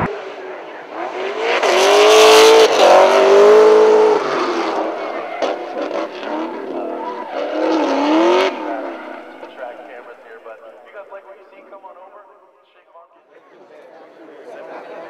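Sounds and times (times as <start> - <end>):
car engine revving hard: 0.0 - 9.6
tyres skidding and squealing: 2.7 - 10.3.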